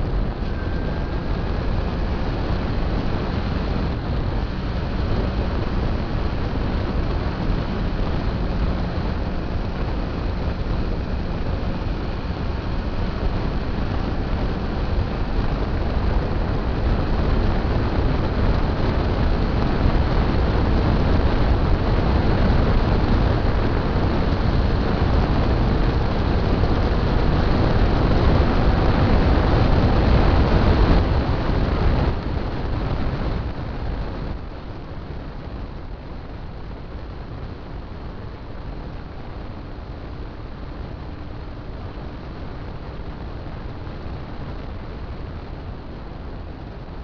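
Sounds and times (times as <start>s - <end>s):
motorcycle engine: 0.0s - 34.8s
road noise: 0.0s - 47.0s
wind rushing over microphone: 0.0s - 47.0s.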